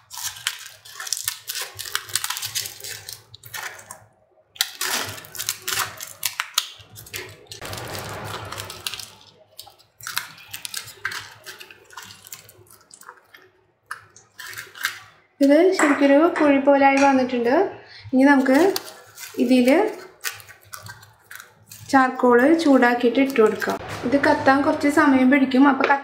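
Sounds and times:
scissors cutting foil: 0:00.0 - 0:04.0, 0:04.6 - 0:13.2, 0:14.2 - 0:15.1, 0:18.3 - 0:23.9
aluminium foil crinkling: 0:00.0 - 0:15.2, 0:18.3 - 0:23.8.

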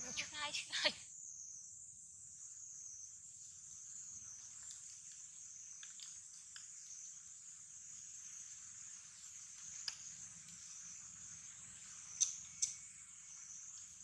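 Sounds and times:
faint soft ticks: 0:04.4 - 0:06.9, 0:09.2 - 0:10.8, 0:12.0 - 0:12.8.

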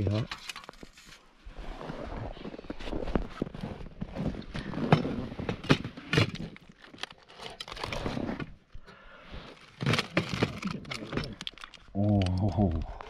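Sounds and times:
aluminium foil crinkling: 0:09.6 - 0:12.3.

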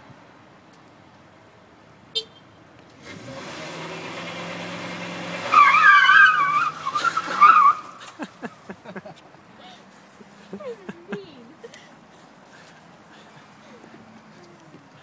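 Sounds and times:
pickup engine revving: 0:03.0 - 0:08.4
tire squeal: 0:05.2 - 0:08.2.

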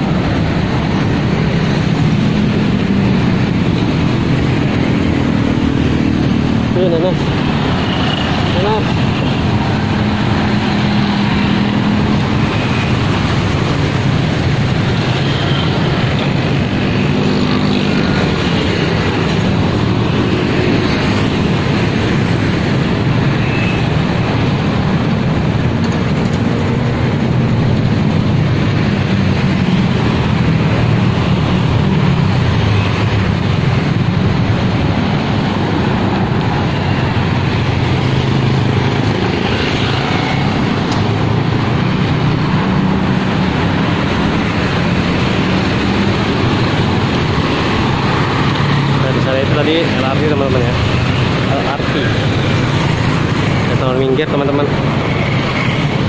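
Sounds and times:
road traffic rumble: 0:00.0 - 0:56.0.

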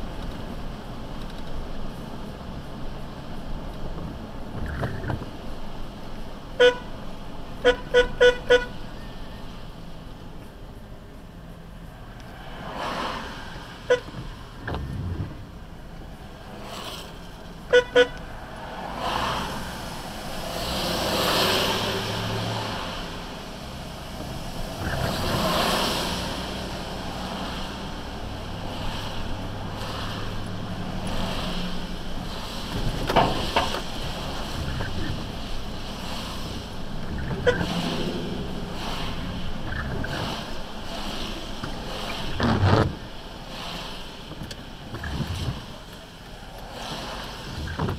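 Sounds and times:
car engine and tyre noise: 0:00.0 - 0:47.9
car horn toots: 0:06.6 - 0:06.9, 0:07.6 - 0:08.8, 0:13.9 - 0:14.2, 0:17.7 - 0:18.3, 0:37.3 - 0:37.8.

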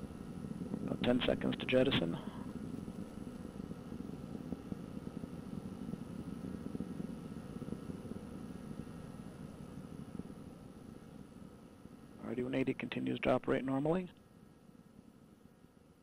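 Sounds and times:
distant low rumble of rocket: 0:02.1 - 0:12.2.

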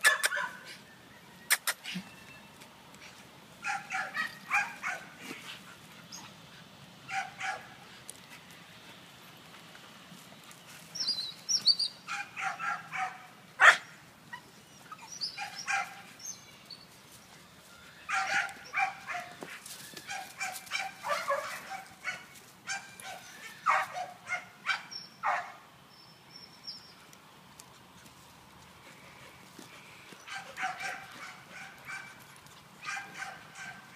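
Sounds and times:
dogs barking: 0:00.0 - 0:00.7, 0:03.6 - 0:05.2, 0:07.1 - 0:07.8, 0:12.1 - 0:14.0, 0:15.3 - 0:16.1, 0:18.1 - 0:19.5, 0:20.1 - 0:25.6, 0:30.2 - 0:32.2, 0:32.8 - 0:33.9.

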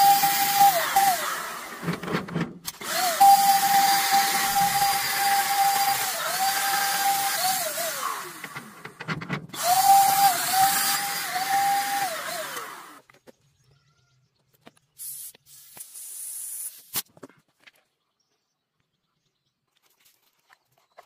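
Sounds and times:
cordless drill whining: 0:00.0 - 0:02.0, 0:02.7 - 0:13.1
compressed air hiss: 0:15.0 - 0:17.0.

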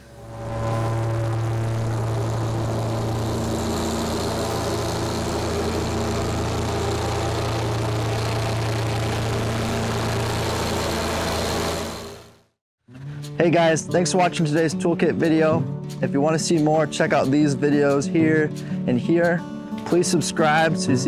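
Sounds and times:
tractor diesel engine running: 0:00.0 - 0:12.4.

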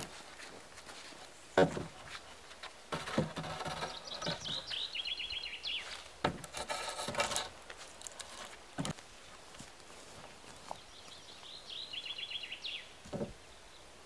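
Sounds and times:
wooden poles knocking and scraping: 0:00.9 - 0:04.8, 0:05.8 - 0:09.0, 0:13.0 - 0:13.4
small bird chirping: 0:03.7 - 0:06.0, 0:10.5 - 0:13.9.

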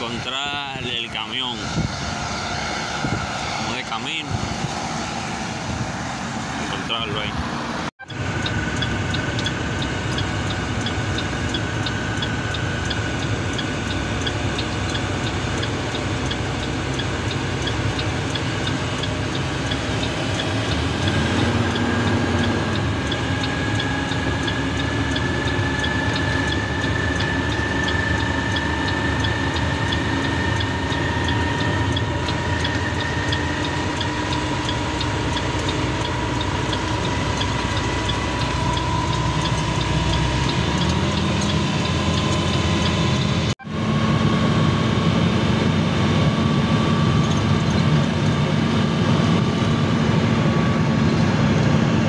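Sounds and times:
rising whine: 0:00.0 - 0:52.0
vehicle engine and road noise: 0:00.0 - 0:52.0
faint regular ticking: 0:08.0 - 0:43.5.

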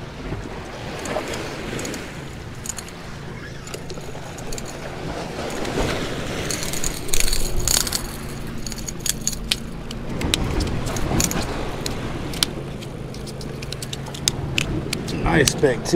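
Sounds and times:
waves washing against rocks: 0:00.0 - 0:15.9
scraping and clicks on rocks: 0:00.9 - 0:15.8
spinning reel cranking: 0:06.4 - 0:09.8.

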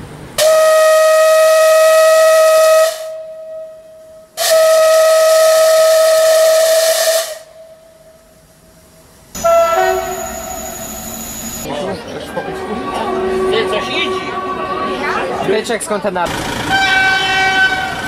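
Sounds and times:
steam locomotive whistle: 0:00.4 - 0:08.1, 0:09.4 - 0:11.6, 0:16.7 - 0:18.0
steam hissing: 0:04.4 - 0:07.6.

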